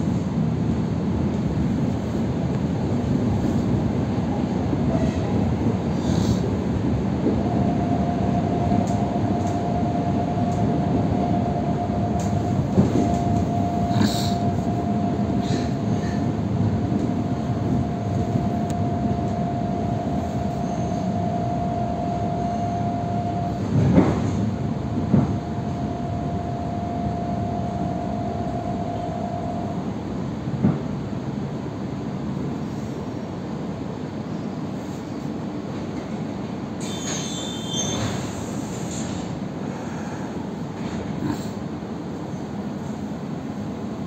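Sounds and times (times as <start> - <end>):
train rumble: 0.0 - 44.0
high whine: 7.2 - 30.4.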